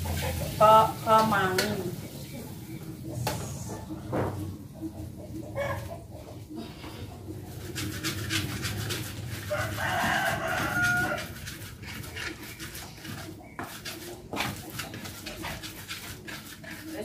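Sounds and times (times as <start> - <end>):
pestle scraping in mortar: 2.7 - 17.0
rooster crowing: 5.6 - 5.9, 9.3 - 11.5.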